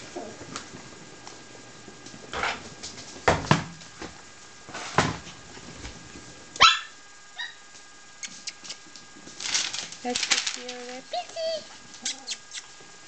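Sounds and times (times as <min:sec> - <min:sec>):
puppy high yelp: 0:06.6 - 0:07.6, 0:11.1 - 0:12.7
puppies barking and yipping: 0:11.1 - 0:12.7.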